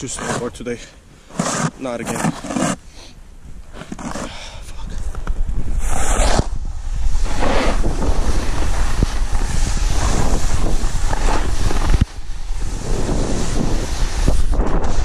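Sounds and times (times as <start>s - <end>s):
wind buffeting microphone: 4.6s - 15.0s
snowboard sliding on snow: 5.7s - 15.0s.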